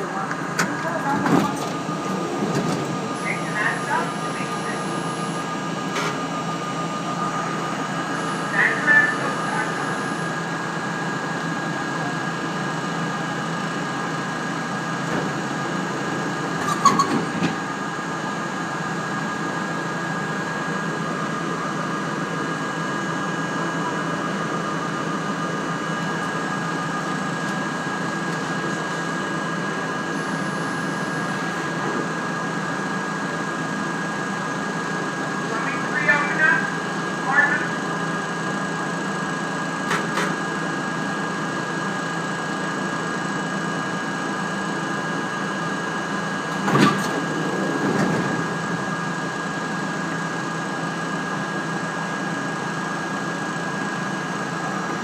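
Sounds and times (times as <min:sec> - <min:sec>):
subway car equipment hum: 0:00.0 - 0:55.0.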